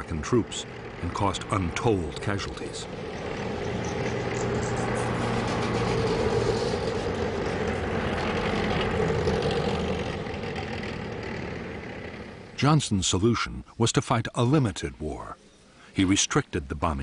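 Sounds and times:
low humming rumble: 0:00.0 - 0:12.6.

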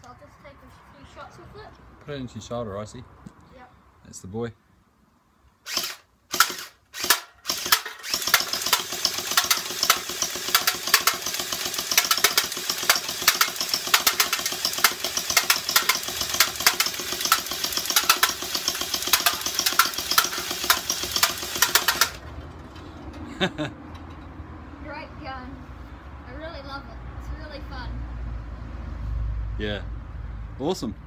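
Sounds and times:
gel blaster motor whirring: 0:05.7 - 0:22.2
rapid sharp clicks of firing: 0:05.7 - 0:22.3.

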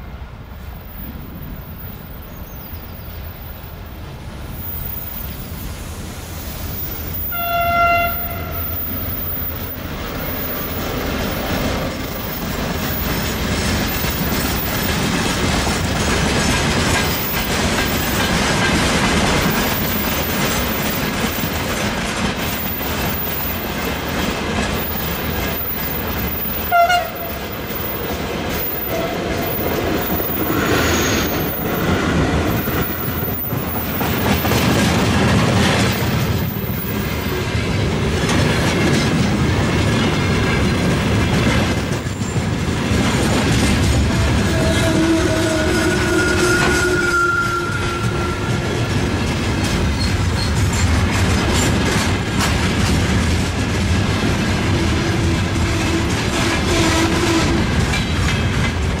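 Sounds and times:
locomotive horn: 0:07.2 - 0:09.1, 0:26.6 - 0:27.4, 0:44.2 - 0:48.9, 0:54.9 - 0:57.8
wagons clattering over rails: 0:08.7 - 0:59.0.

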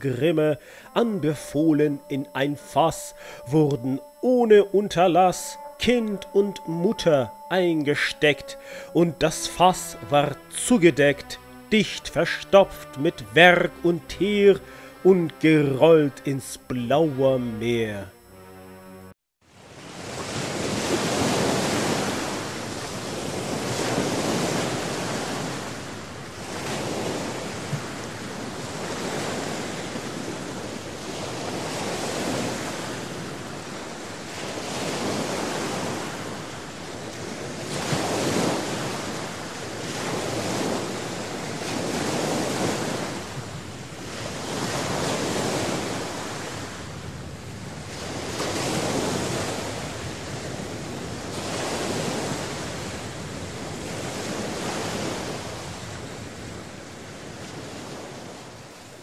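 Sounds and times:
waves surging and crashing: 0:19.8 - 0:46.8, 0:47.9 - 0:58.5.

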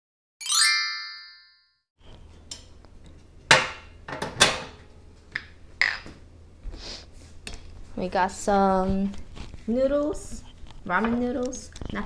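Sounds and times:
dishes clattering on a table: 0:03.5 - 0:06.2.

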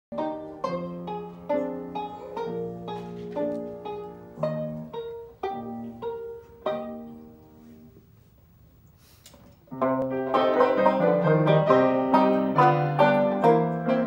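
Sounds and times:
banjo: 0:00.1 - 0:08.0, 0:09.7 - 0:14.0
short soft hiss: 0:07.2 - 0:09.7
grand piano: 0:09.7 - 0:14.0.

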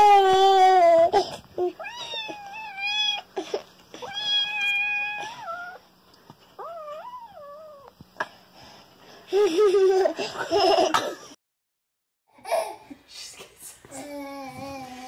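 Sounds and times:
toddler whimpering and crying: 0:00.0 - 0:05.8.

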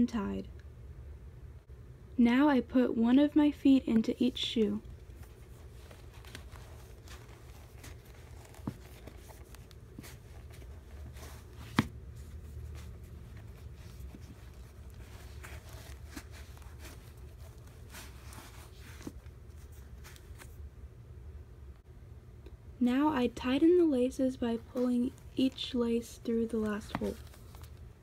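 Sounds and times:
low steady hum: 0:00.0 - 0:28.0
rustling and scuffing of sneakers: 0:04.8 - 0:20.6, 0:26.6 - 0:28.0.

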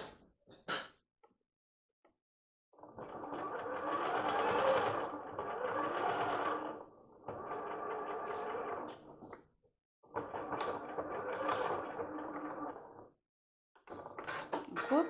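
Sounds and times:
sewing machine stitching: 0:02.8 - 0:09.2, 0:10.1 - 0:13.0.

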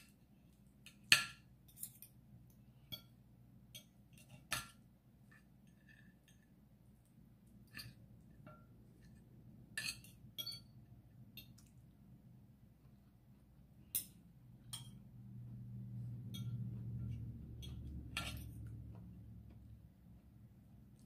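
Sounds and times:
cutlery clinking on ceramic plate: 0:09.8 - 0:10.8, 0:16.3 - 0:18.6
low hum: 0:14.3 - 0:21.0.

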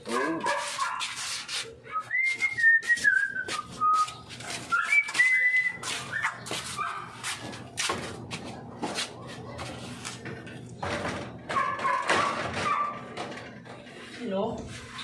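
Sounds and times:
person whistling a tune: 0:01.9 - 0:06.0
window frame clanks and knocks: 0:10.8 - 0:13.8.

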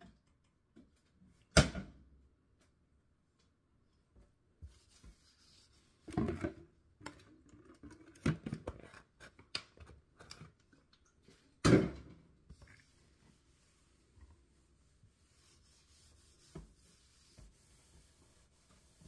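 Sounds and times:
rubbing and scraping on counter: 0:04.6 - 0:06.6, 0:12.5 - 0:19.0.

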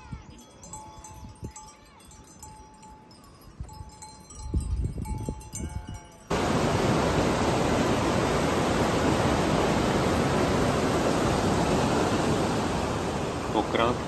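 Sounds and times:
rushing water: 0:06.3 - 0:14.0.

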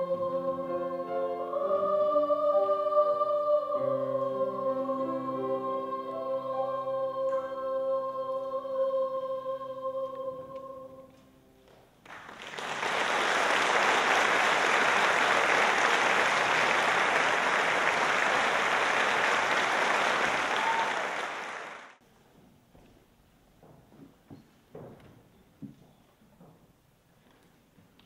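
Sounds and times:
audience applauding: 0:12.0 - 0:22.0.

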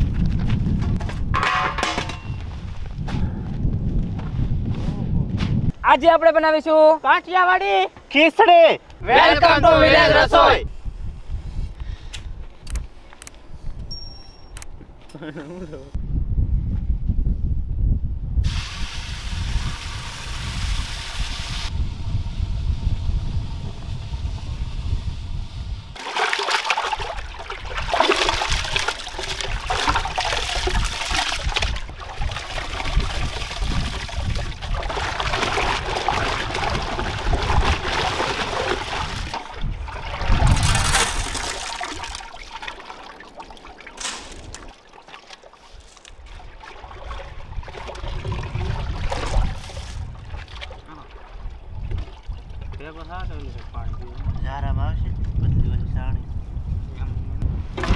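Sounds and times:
water splashing and sloshing: 0:26.0 - 0:54.5.

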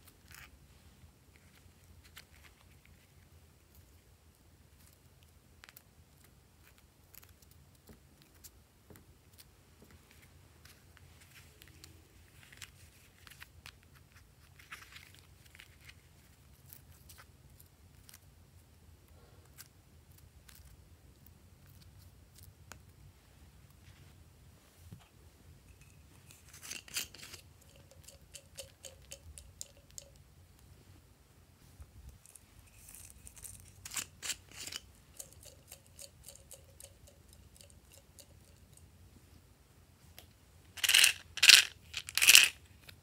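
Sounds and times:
crinkly rustle: 0:10.0 - 0:17.3.

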